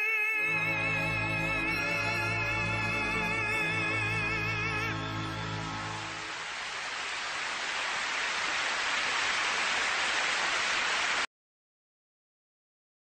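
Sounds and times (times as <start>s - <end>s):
band holding final chord: 0.5s - 6.4s
audience applause: 5.2s - 11.3s.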